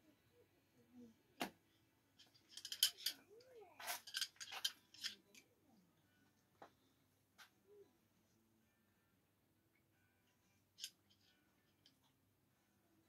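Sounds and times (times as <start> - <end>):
metal screwdrivers clinking: 2.2 - 5.4, 10.8 - 12.0.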